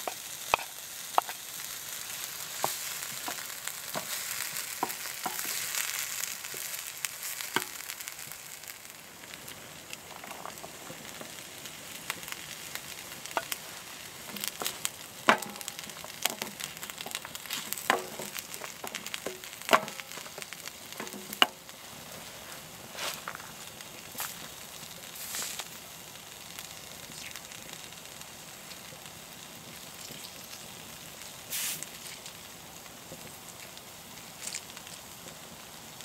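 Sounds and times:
vegetables sizzling in a frying pan: 0.0 - 36.0
wooden spoon knocking a pan: 4.8 - 5.6, 14.3 - 17.2, 17.8 - 21.6.

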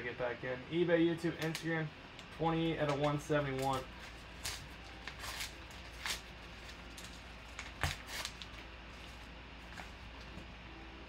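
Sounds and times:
paper envelope tearing: 2.8 - 8.6.

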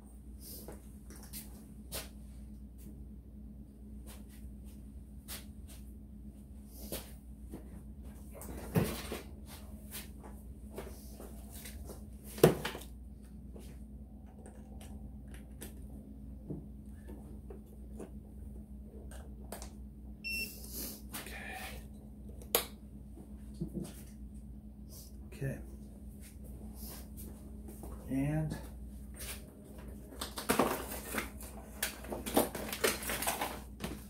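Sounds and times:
faint steady hum: 0.0 - 34.0
short electronic beep: 20.2 - 20.6.

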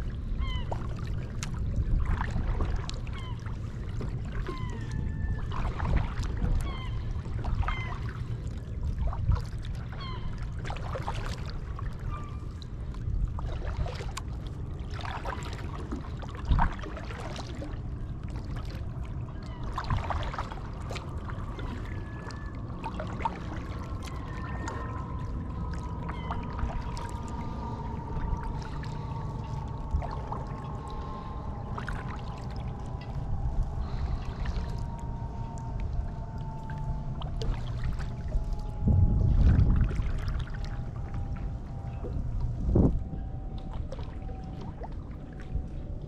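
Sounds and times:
steady low rumble: 0.0 - 46.0
paddle splashing in water: 0.5 - 33.2, 35.9 - 38.6, 39.2 - 42.9
water dripping and trickling: 9.0 - 46.0
steady whine: 20.6 - 45.8.

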